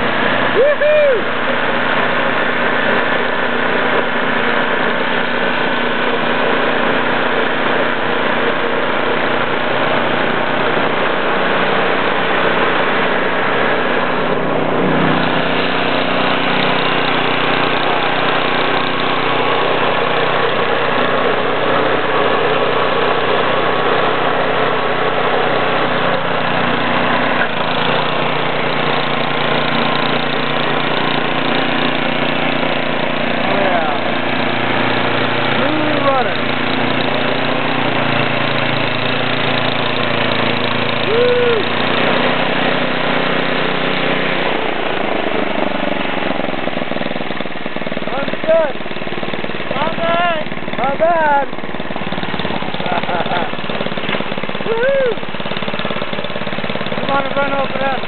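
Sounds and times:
snowblower engine running: 0.0 - 58.0
snow throwing from chute: 52.8 - 53.5, 54.1 - 55.3.

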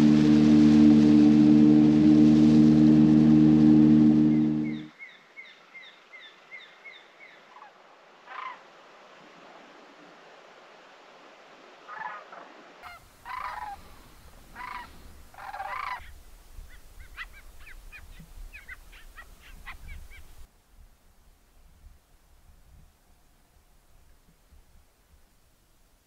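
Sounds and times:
low rumble: 0.0 - 4.9
geese honking: 12.8 - 16.2.

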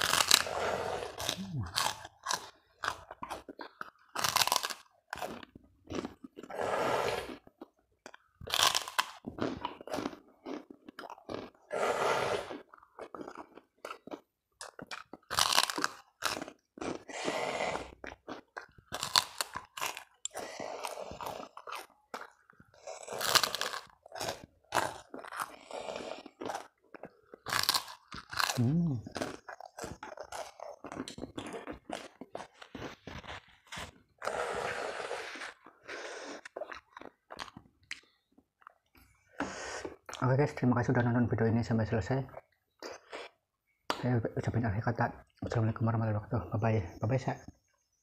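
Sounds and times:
crackers crackling when bitten: 0.0 - 0.5, 1.2 - 6.5, 7.3 - 11.6, 12.5 - 17.2, 17.8 - 34.3
crunchy chewing: 0.0 - 40.3.

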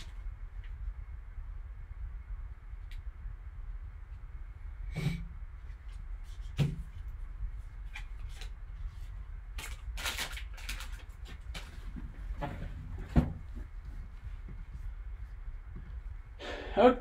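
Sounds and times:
low steady hum: 0.0 - 17.0
foil wrapper crinkling: 9.5 - 12.0.

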